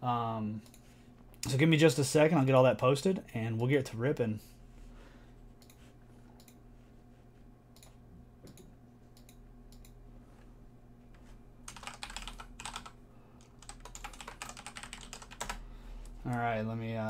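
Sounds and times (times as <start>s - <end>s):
faint steady hum: 0.0s - 17.0s
computer keyboard typing: 11.7s - 15.6s.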